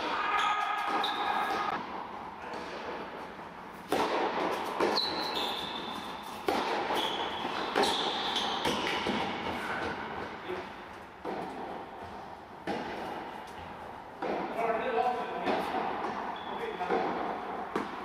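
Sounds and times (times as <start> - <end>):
shoes squeaking on court: 0.3 - 1.8, 4.5 - 10.6, 16.1 - 18.0
racket striking tennis ball: 2.5 - 18.0.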